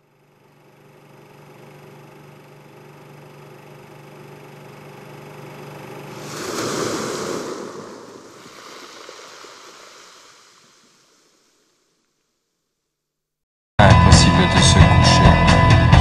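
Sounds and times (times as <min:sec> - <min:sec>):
rushing noise surge: 0:06.1 - 0:11.2.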